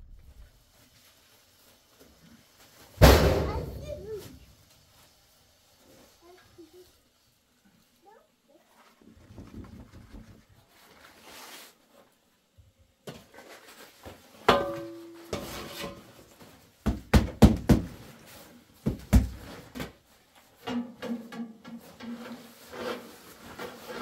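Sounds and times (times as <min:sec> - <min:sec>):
objects knocking and thudding: 0:03.0 - 0:04.1, 0:09.0 - 0:10.6, 0:13.0 - 0:24.0.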